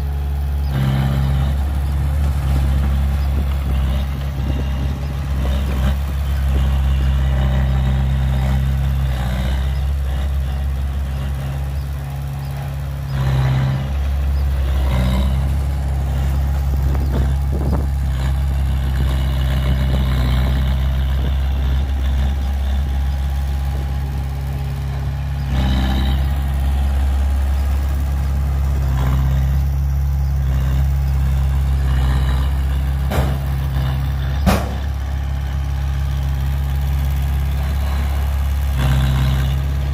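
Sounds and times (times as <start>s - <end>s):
diesel engines droning: 0.0s - 39.9s
metal knocks and clanks: 33.0s - 33.6s, 34.2s - 34.9s.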